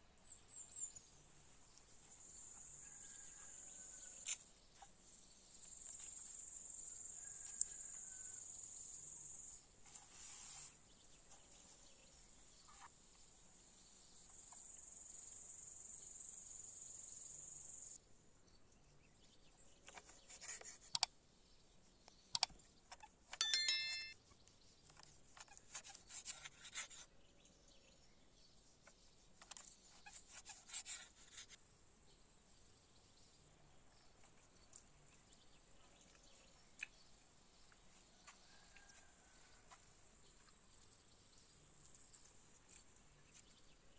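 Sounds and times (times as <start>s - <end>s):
ringing ding: 23.4s - 24.2s.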